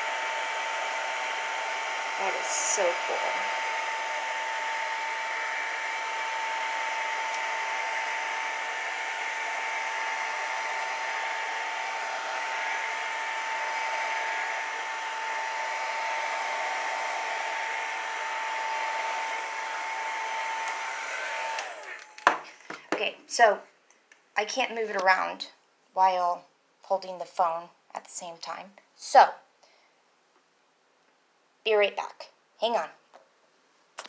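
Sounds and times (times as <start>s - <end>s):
heat gun blowing with whine: 0.0s - 22.8s.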